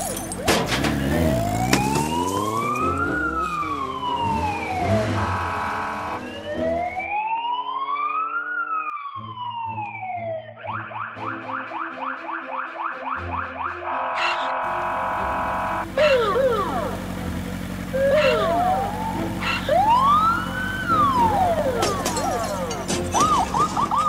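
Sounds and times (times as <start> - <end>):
debris breaking: 0.0 - 3.0, 21.6 - 24.0
police siren wailing: 0.0 - 24.0
background music: 9.1 - 16.5
low vehicle rumble: 14.7 - 24.0.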